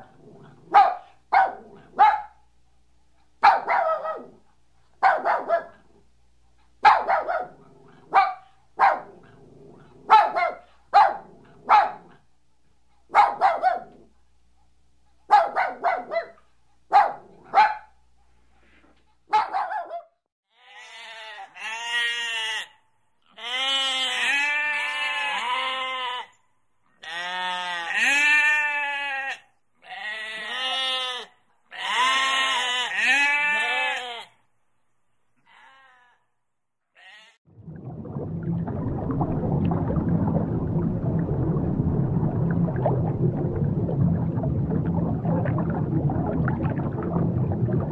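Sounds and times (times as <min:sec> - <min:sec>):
dog barking: 0:00.7 - 0:02.4, 0:03.4 - 0:04.4, 0:05.0 - 0:05.8, 0:06.8 - 0:09.3, 0:10.0 - 0:12.2, 0:13.1 - 0:14.1, 0:15.3 - 0:18.0, 0:19.3 - 0:20.2
sheep bleating: 0:20.5 - 0:22.7, 0:23.3 - 0:26.4, 0:27.0 - 0:34.4, 0:35.4 - 0:36.2, 0:37.0 - 0:37.4.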